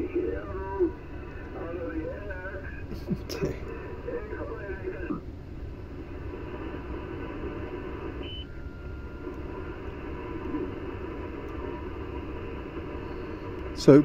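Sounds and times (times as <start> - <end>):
radio hiss and static: 0.0 - 14.0
faint steady tone: 6.0 - 14.0.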